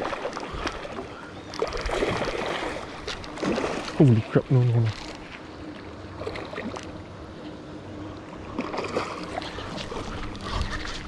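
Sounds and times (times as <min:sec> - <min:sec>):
fish thrashing in water: 0:01.6 - 0:04.1.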